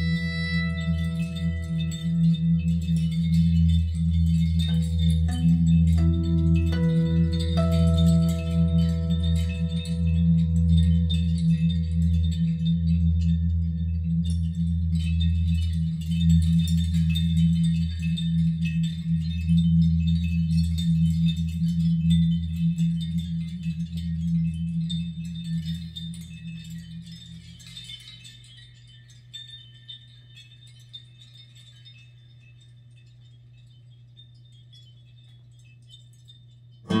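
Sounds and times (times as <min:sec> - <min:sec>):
low sustained music chord: 0:00.0 - 0:27.4
chime-like high notes: 0:00.0 - 0:32.6.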